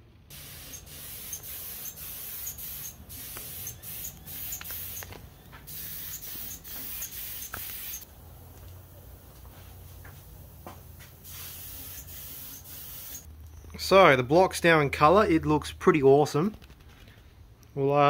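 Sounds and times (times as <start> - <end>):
paint spray gun hissing: 0.3 - 8.1, 11.1 - 13.3.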